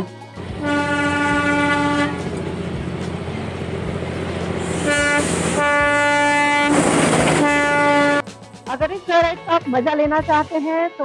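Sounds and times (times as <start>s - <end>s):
train rumble: 0.4s - 8.5s
train horn tooting: 0.6s - 2.4s, 4.7s - 8.2s.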